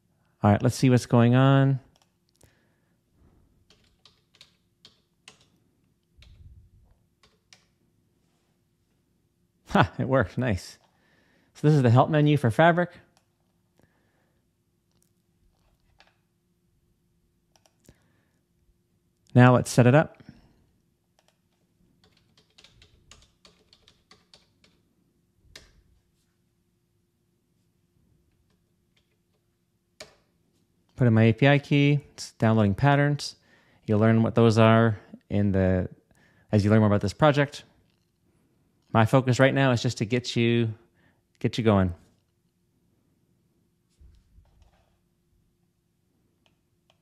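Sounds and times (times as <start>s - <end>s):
keyboard keystrokes: 3.7s - 5.6s, 7.2s - 7.7s, 21.2s - 24.8s.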